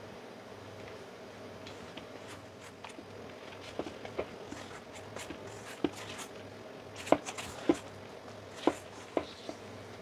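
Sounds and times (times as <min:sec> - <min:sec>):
spatula stirring dough: 0:01.9 - 0:09.6.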